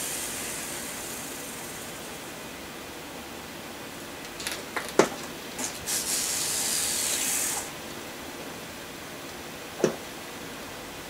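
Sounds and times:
pressurised gas hissing out: 0.0s - 2.5s, 5.6s - 7.8s.

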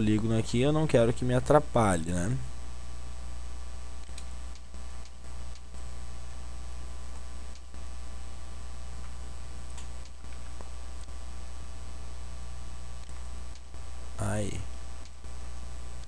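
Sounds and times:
low electrical hum: 0.0s - 16.0s
computer mouse clicks: 4.0s - 5.7s.

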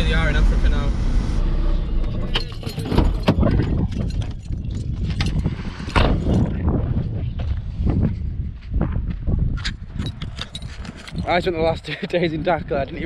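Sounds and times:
low rumble: 0.0s - 11.8s
van door opening: 1.9s - 4.2s
keys jangling: 2.2s - 5.5s, 10.0s - 11.5s.

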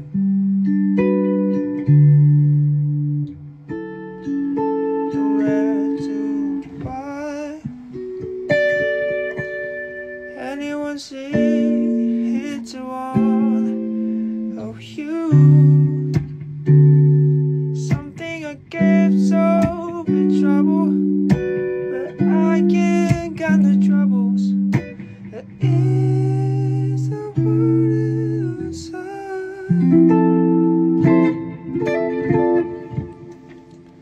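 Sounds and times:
guitar playing: 0.0s - 34.0s.

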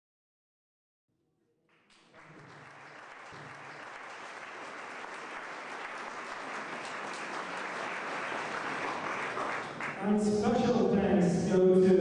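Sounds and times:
audience applauding: 1.8s - 10.6s.

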